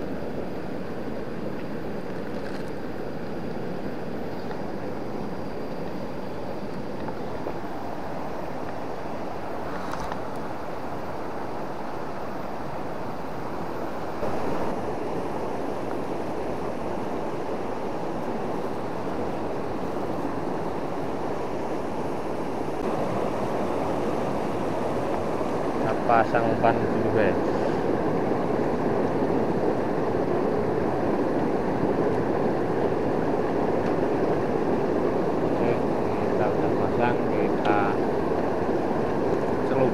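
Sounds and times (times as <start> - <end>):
fast-flowing river rushing: 0.0 - 39.9.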